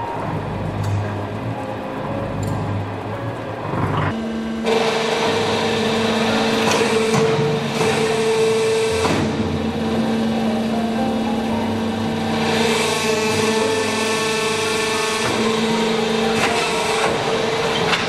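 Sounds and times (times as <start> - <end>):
brick press machinery running: 0.0 - 18.0
motor whine: 3.6 - 18.0
mechanical clatter: 15.1 - 18.0.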